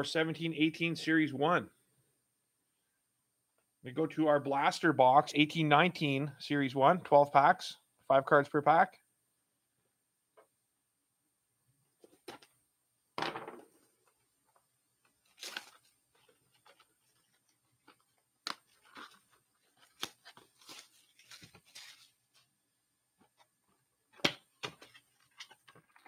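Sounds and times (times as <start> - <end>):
cardboard tearing and crinkling: 15.2 - 15.9.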